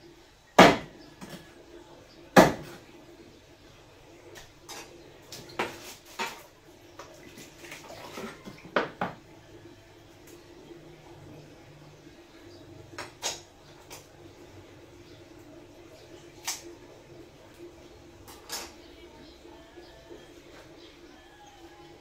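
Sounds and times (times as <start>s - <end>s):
knife chopping fish on wood: 0.6s - 0.9s, 2.4s - 2.8s.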